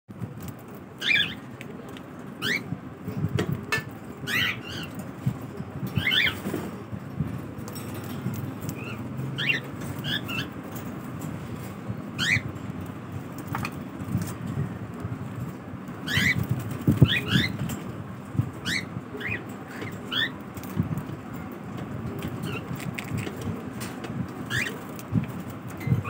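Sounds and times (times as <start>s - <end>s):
cockatiels chirping: 1.0s - 1.4s, 2.4s - 2.7s, 4.3s - 4.9s, 6.0s - 6.4s, 8.8s - 10.5s, 12.2s - 12.5s, 16.1s - 17.6s, 18.6s - 20.4s, 22.4s - 22.6s, 24.5s - 24.8s.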